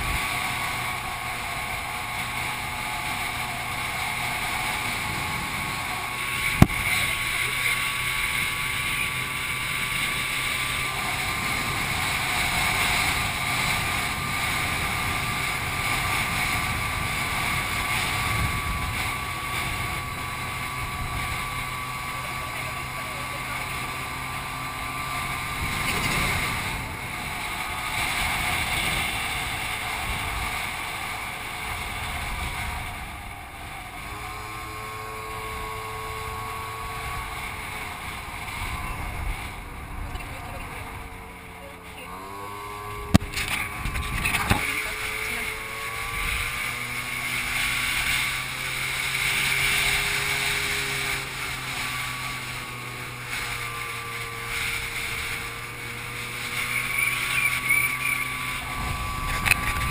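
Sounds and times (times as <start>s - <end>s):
scooter engine droning: 0.0s - 59.9s
wind on microphone: 0.0s - 59.9s.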